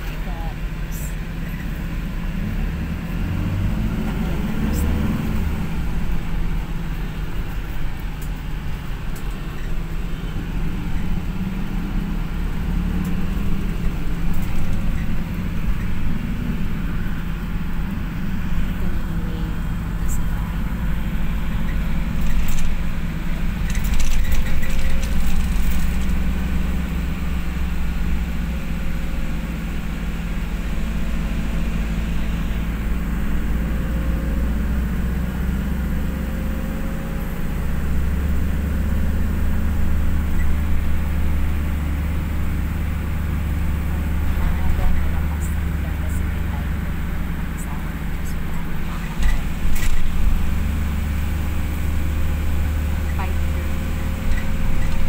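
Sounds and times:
engine and road rumble: 0.0 - 55.0
brief clicks and rattles: 23.6 - 26.2, 49.2 - 50.1.

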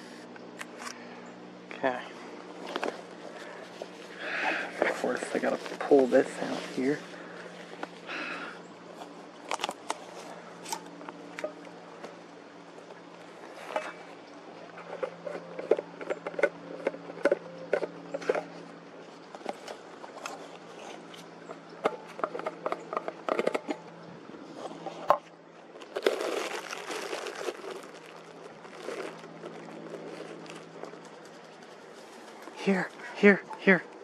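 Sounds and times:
steady low hum: 0.0 - 34.0
plastic packaging crinkling: 25.7 - 32.4.

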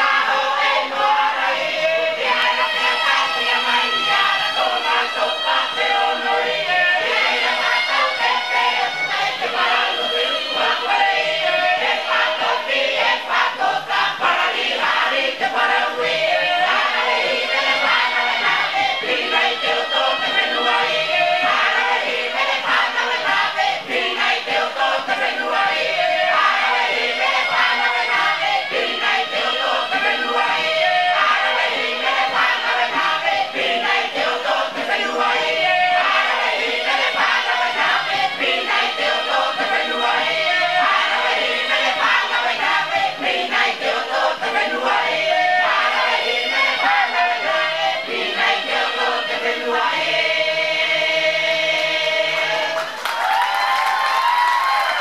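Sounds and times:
choir singing in harmony: 0.0 - 55.0.

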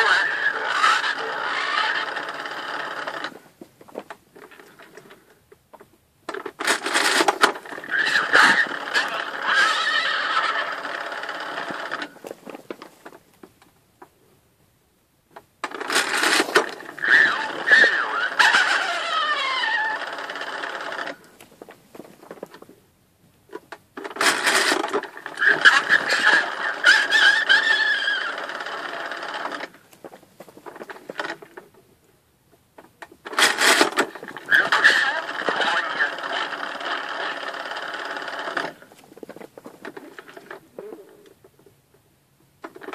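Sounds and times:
toy speaker horse whinny: 0.0 - 3.4, 6.6 - 12.2, 15.8 - 21.3, 24.1 - 29.7, 33.3 - 38.9.

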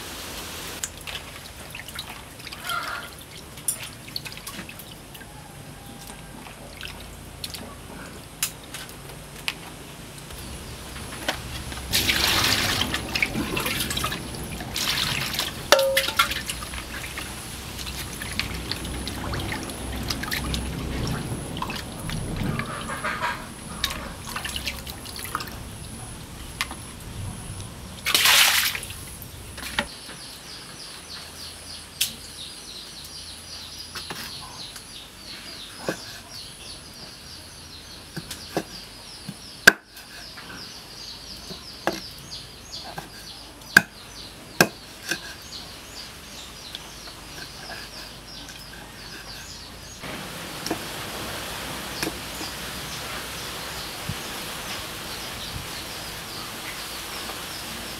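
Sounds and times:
water splash: 11.2 - 25.6, 28.0 - 29.8
hands sloshing fish in water: 11.7 - 23.0, 28.1 - 28.9
cleaver chopping on wooden board: 44.6 - 45.2.

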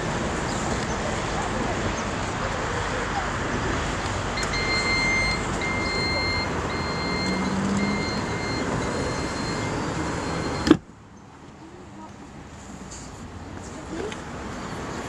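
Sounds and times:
high warning beep: 4.4 - 10.8.

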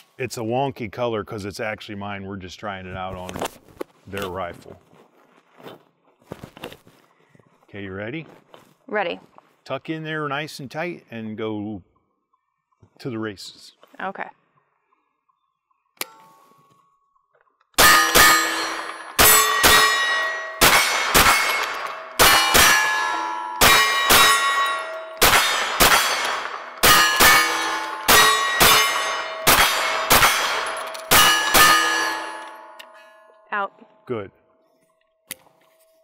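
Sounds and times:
carbine gunshots: 17.8 - 32.6
steel targets clanging: 17.8 - 33.2.

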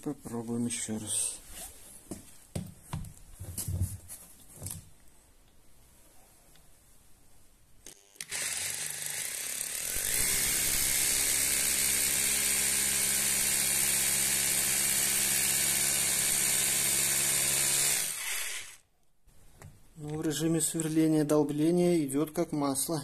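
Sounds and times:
rotary hammer drilling concrete: 7.9 - 18.8.

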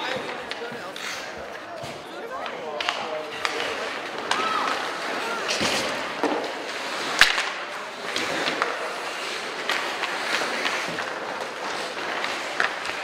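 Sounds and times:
hockey sticks clicking: 0.0 - 13.0
skates hissing on ice: 0.8 - 1.5, 3.5 - 13.0
sharp crack: 2.8 - 13.0.

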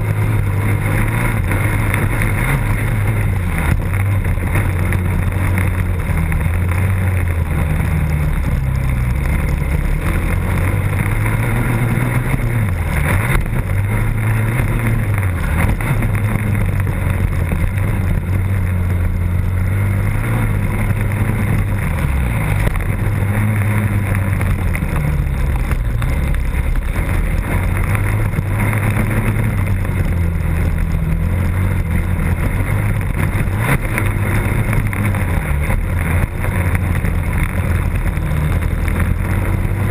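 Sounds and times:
dirt bike engine revving: 0.0 - 39.9.

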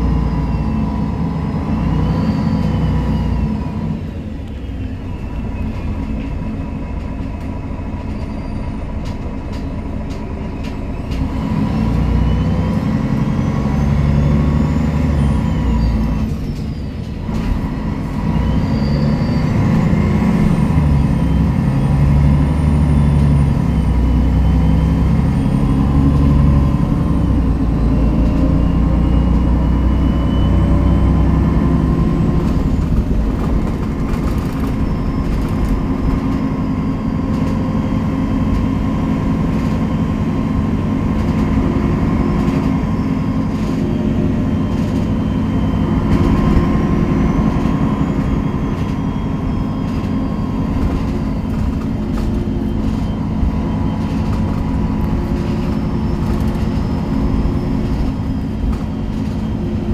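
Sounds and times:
bus diesel engine running: 0.0 - 59.9
road noise: 0.0 - 59.9
rattles and clicks: 32.4 - 40.0, 47.4 - 59.9.

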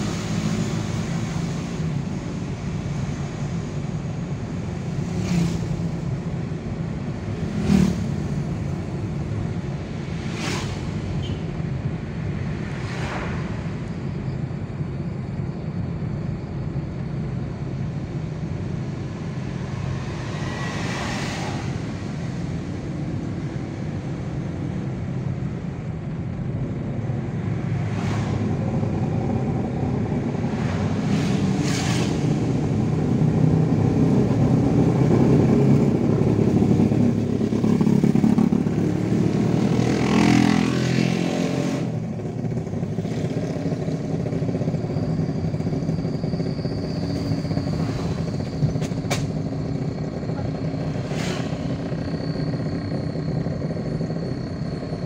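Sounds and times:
passing traffic whooshes: 0.0 - 55.0
vehicle engine and tyre noise: 0.0 - 55.0.

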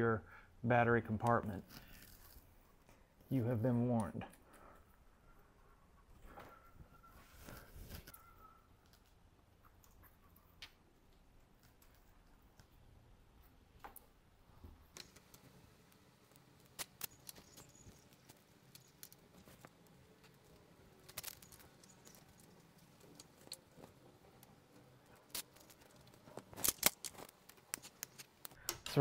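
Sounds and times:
zip ties clicking: 25.2 - 29.0.

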